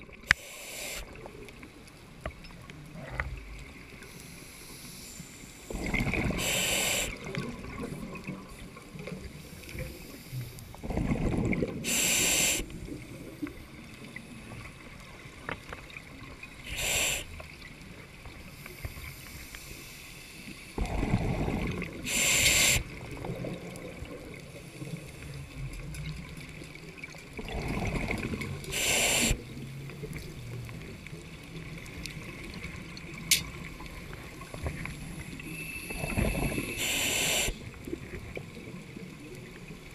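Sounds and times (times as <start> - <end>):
exhaled bubbles rumbling underwater: 5.7 - 18.5, 20.8 - 39.9
regulator hissing: 6.4 - 7.2, 11.9 - 12.7, 16.7 - 17.3, 22.1 - 22.9, 28.7 - 29.4, 36.6 - 37.6.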